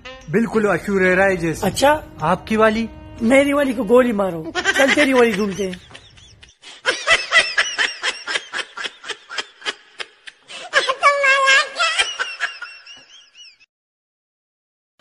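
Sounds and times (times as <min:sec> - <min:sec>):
high-pitched laughter: 0:04.5 - 0:13.7.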